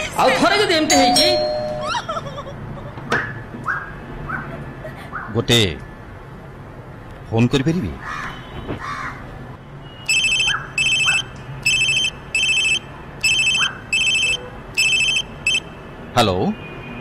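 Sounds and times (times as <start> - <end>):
telephone double ring: 10.1 - 15.6.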